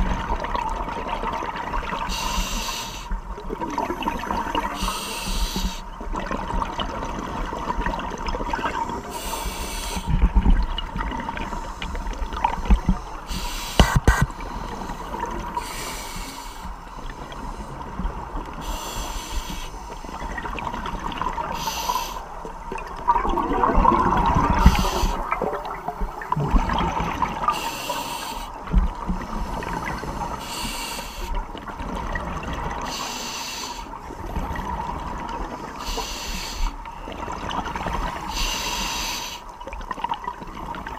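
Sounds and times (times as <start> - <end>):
regulator inhalation hiss: 2.1 - 3.2, 4.8 - 5.8, 9.1 - 10.1, 13.3 - 14.9, 15.6 - 16.7, 18.6 - 20.1, 21.5 - 22.3, 24.6 - 25.3, 27.5 - 28.5, 30.0 - 31.4, 32.9 - 33.9, 35.8 - 36.8, 38.3 - 39.4
bubbling exhalations: 23.0 - 27.6.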